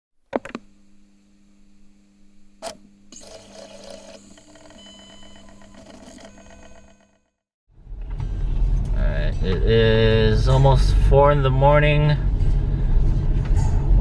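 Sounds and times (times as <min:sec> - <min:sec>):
steady low hum: 0:00.3 - 0:06.9
mechanical ticking and whirring: 0:02.6 - 0:07.4.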